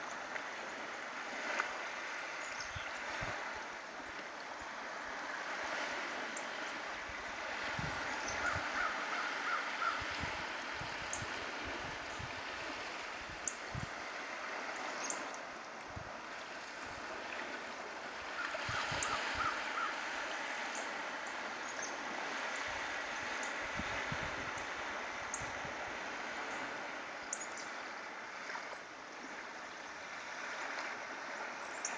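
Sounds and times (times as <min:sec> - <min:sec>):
waves washing on shore: 0:00.0 - 0:31.9
wind rushing over microphone: 0:07.0 - 0:09.2, 0:09.8 - 0:14.3, 0:22.1 - 0:26.4
low wind buffeting thumps: 0:07.7 - 0:08.6.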